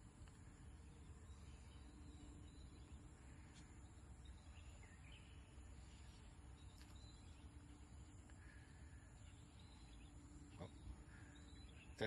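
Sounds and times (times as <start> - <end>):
faint bird chirps: 0.2 - 12.0.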